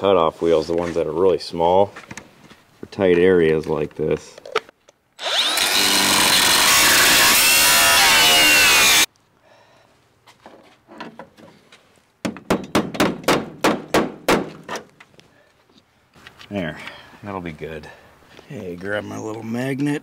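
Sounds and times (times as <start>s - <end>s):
angle grinder cutting steel: 5.2s - 9.1s.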